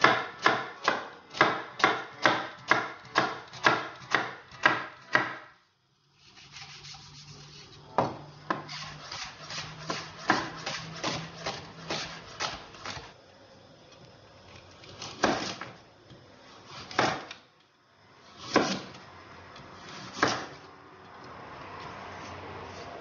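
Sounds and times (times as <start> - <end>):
knife chopping on wooden board: 0.0 - 5.5, 8.0 - 13.1, 15.1 - 15.7, 16.8 - 17.4, 18.4 - 19.0, 20.0 - 20.6.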